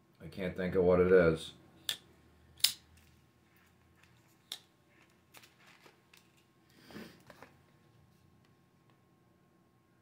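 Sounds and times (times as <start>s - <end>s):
folding knife clicks: 2.6s - 2.8s.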